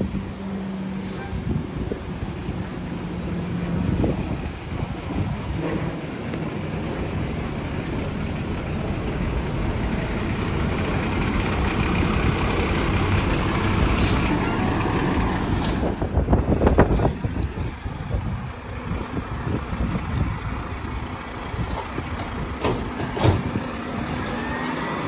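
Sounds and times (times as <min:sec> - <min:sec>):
garbage truck diesel engine: 0:00.0 - 0:25.0.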